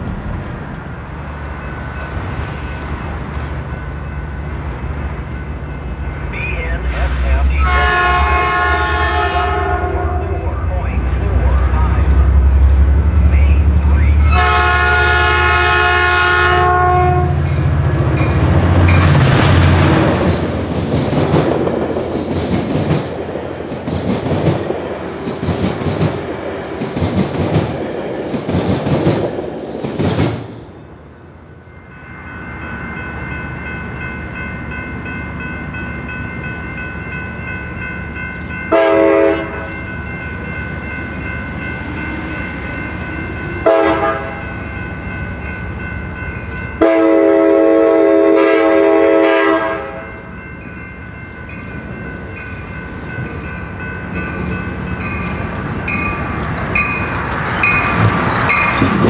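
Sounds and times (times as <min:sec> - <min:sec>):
locomotive horn: 0:06.6 - 0:12.5, 0:13.5 - 0:17.5, 0:38.7 - 0:39.7, 0:43.6 - 0:44.4, 0:46.8 - 0:50.1
train wheels clacking over rails: 0:17.4 - 0:30.5, 0:52.4 - 0:59.0.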